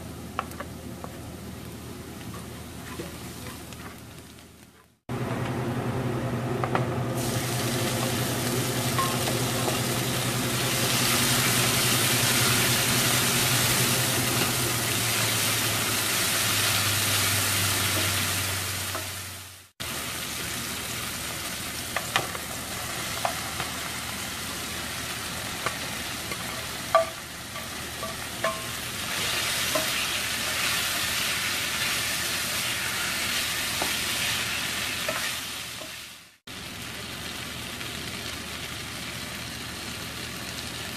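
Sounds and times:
onion and garlic sizzling in oil: 0:00.0 - 0:40.9
tomatoes frying with a sizzle: 0:00.0 - 0:40.9
spatula tapping against a pan: 0:26.9 - 0:28.7.

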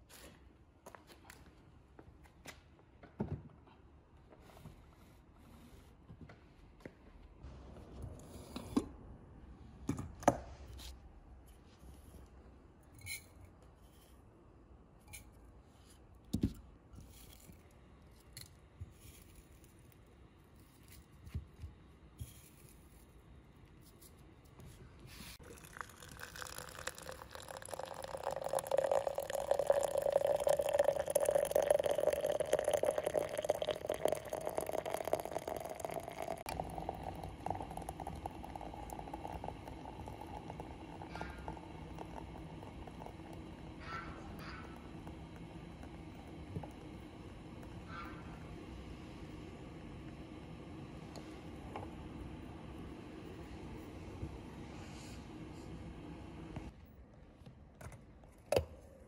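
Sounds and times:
water pouring into glass: 0:25.4 - 0:47.7.

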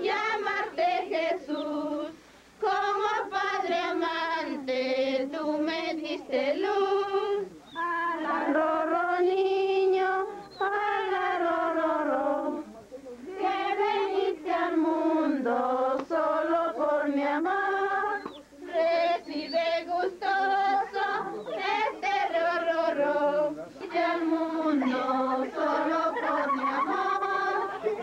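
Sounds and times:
group of people singing slowly: 0:00.0 - 0:28.0.

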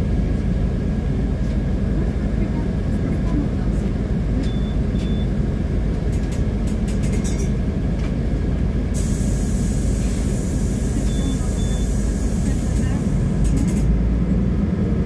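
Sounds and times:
heavy vehicles rumbling: 0:00.0 - 0:15.0
hiss: 0:09.0 - 0:13.1.

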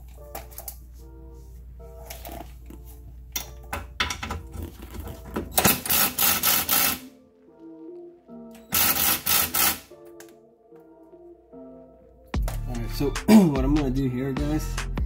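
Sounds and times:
background music: 0:00.0 - 0:15.0
ratchet clicking: 0:05.6 - 0:07.0, 0:08.7 - 0:09.9.

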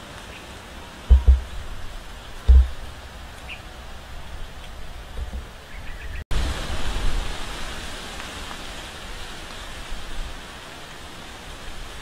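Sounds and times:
wind buffeting microphone: 0:01.0 - 0:10.4.

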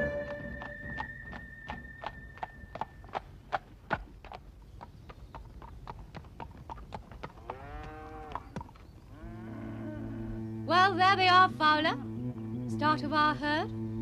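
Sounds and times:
hooves clopping on hard ground: 0:00.0 - 0:09.1
cow mooing: 0:07.4 - 0:08.5, 0:09.1 - 0:13.1.

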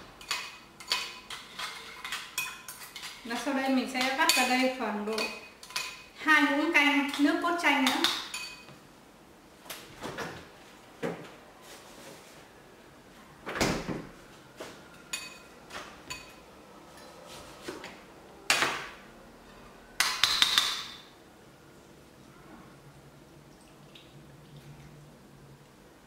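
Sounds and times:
refrigerator door opening and shutting: 0:13.4 - 0:14.1.

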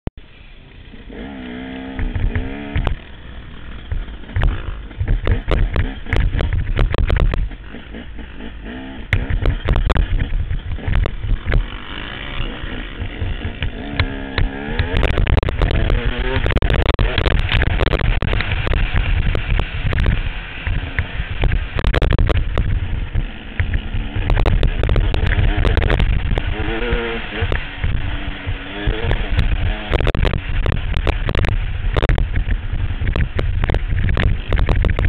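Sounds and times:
dirt bike engine revving: 0:00.3 - 0:35.0
wind buffeting microphone: 0:08.6 - 0:35.0.

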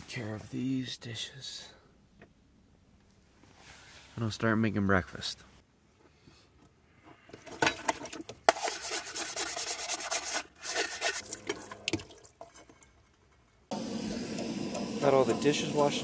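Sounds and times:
scrubber rasping against metal pan: 0:08.5 - 0:11.6.

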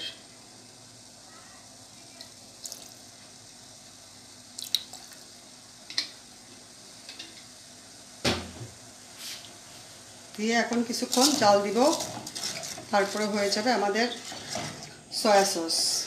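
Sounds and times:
faint steady hiss: 0:00.0 - 0:16.0
sauce dripping and popping: 0:04.5 - 0:05.2.

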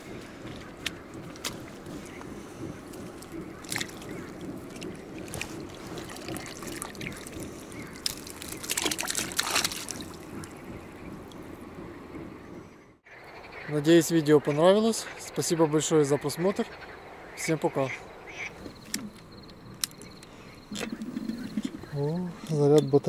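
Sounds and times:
water trickling and splashing: 0:00.0 - 0:12.3
sharp clicks: 0:18.8 - 0:21.0.

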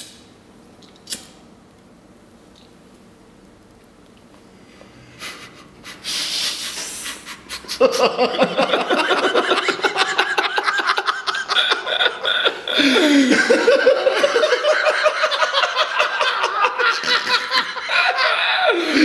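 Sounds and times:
men laughing loudly: 0:07.4 - 0:19.0.

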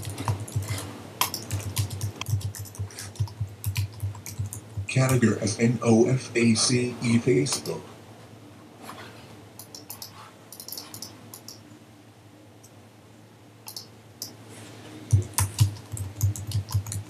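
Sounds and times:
typing on computer keyboard: 0:00.0 - 0:05.2, 0:09.6 - 0:11.6, 0:13.6 - 0:14.4, 0:15.1 - 0:17.0.

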